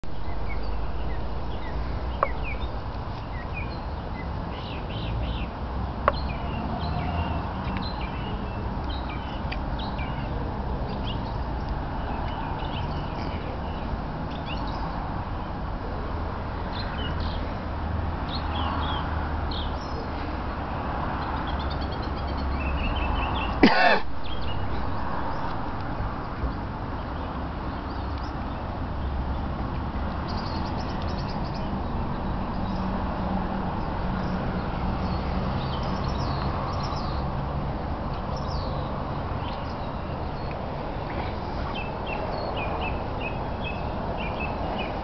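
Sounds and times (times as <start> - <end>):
small birds chirping: 0.2 - 15.5, 26.2 - 33.1, 33.7 - 37.4, 38.1 - 45.0.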